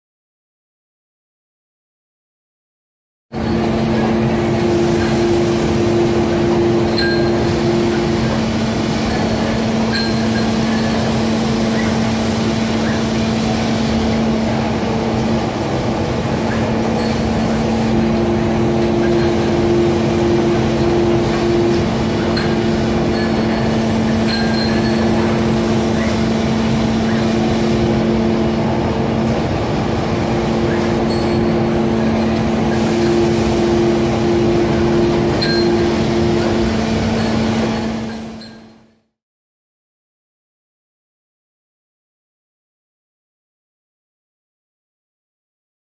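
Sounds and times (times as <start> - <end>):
production line machines humming: 3.3 - 39.0
steady machine tones: 3.4 - 38.9.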